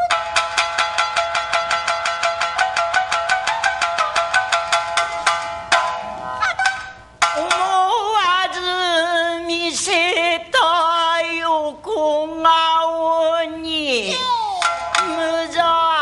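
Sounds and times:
shamisen plucking: 0.0 - 10.2, 14.1 - 16.0.

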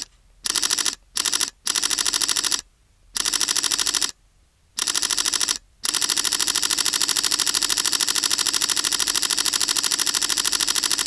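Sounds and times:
camera shutter burst clicks: 0.0 - 2.6, 3.2 - 4.2, 4.8 - 11.0.

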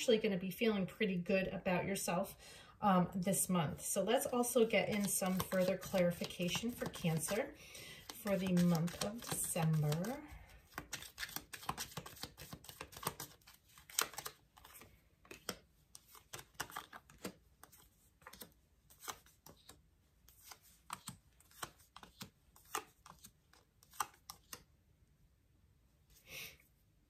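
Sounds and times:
cards slapping on glass table: 8.0 - 17.4.

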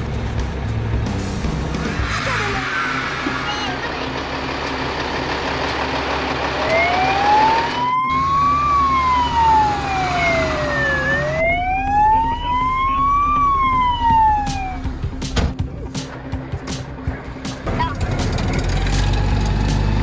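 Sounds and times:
fire engine siren wailing: 6.5 - 14.9.

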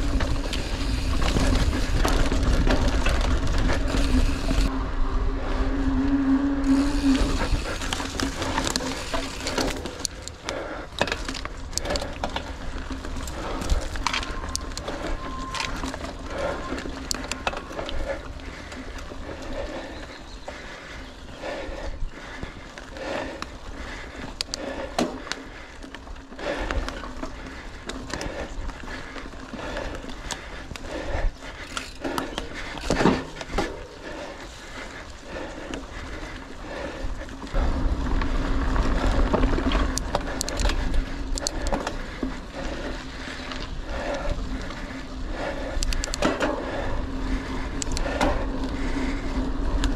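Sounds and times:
bike rattling clicks and knocks: 0.0 - 4.7, 6.6 - 49.9
low rumble: 0.0 - 9.8
bike rolling over rough trail: 0.0 - 49.9.

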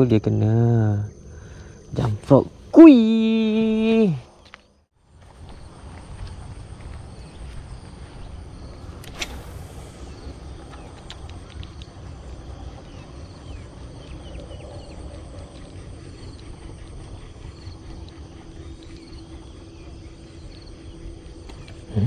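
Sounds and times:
faint steady hum: 0.0 - 22.0
low rumble: 5.0 - 22.0.

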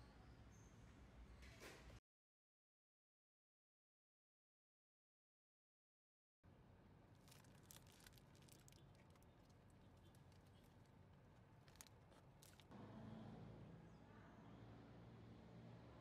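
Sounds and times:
paper wrapper crinkling: 7.2 - 10.9, 11.6 - 12.7.

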